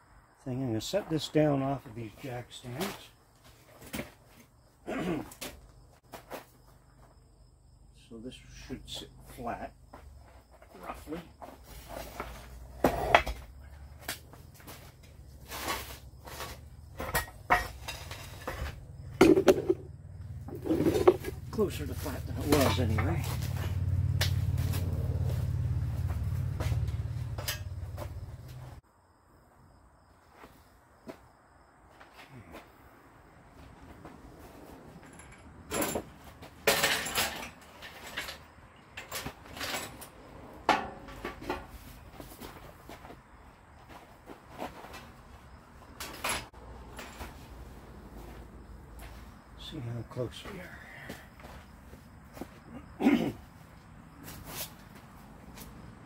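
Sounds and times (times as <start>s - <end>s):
metal clattering and scraping: 14.4s - 28.8s, 34.4s - 43.0s
metal clanks and knocks: 16.4s - 21.7s, 26.1s - 28.6s, 35.0s - 41.8s.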